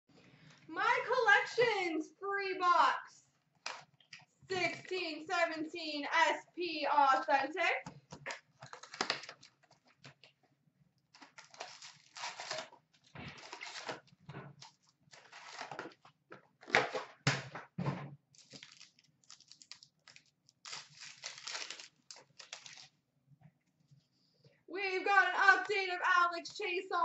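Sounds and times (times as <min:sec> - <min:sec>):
card pack wrapper tearing: 0:08.3 - 0:10.2, 0:11.2 - 0:16.0, 0:18.4 - 0:23.0.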